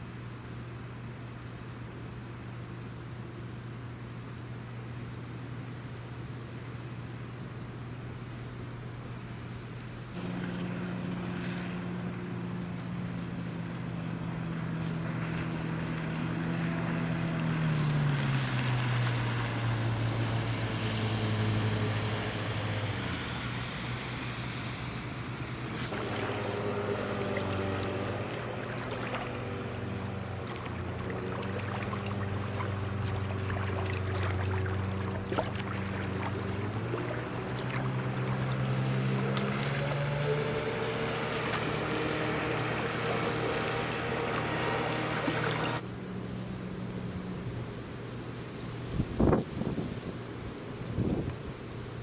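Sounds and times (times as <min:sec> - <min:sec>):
outboard motor running: 0:10.0 - 0:47.8
spray and wind hiss: 0:20.8 - 0:28.3, 0:45.4 - 0:52.0.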